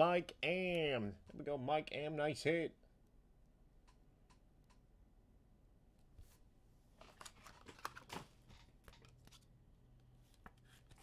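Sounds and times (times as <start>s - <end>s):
trading cards rustling and clicking: 7.0s - 9.6s.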